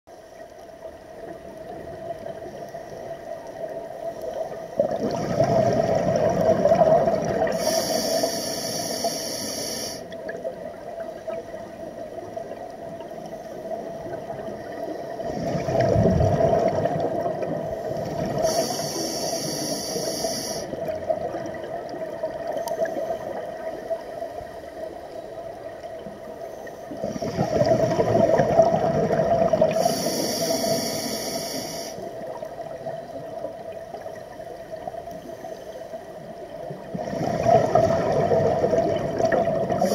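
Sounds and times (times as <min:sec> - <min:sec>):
exhaled bubbles underwater: 0:01.1 - 0:08.5, 0:10.1 - 0:35.2, 0:36.2 - 0:39.9
regulator hiss: 0:07.4 - 0:10.2, 0:17.8 - 0:20.8, 0:29.7 - 0:32.2
faint steady tone: 0:17.4 - 0:21.5, 0:29.7 - 0:36.8.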